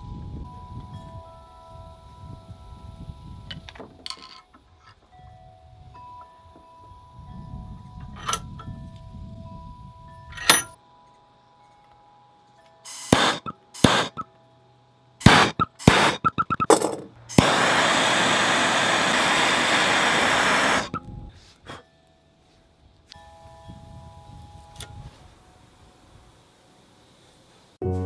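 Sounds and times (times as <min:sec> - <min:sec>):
gas torch hissing: 0:12.9 - 0:14.2, 0:15.2 - 0:16.2, 0:17.3 - 0:21.8
torch igniter clicking: 0:12.9 - 0:14.2, 0:17.3 - 0:21.2.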